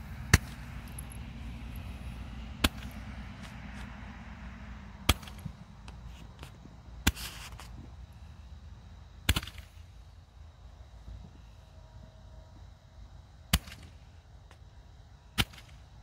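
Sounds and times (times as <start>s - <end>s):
fireworks crackle: 6.3s - 7.7s
fireworks popping: 6.3s - 7.7s.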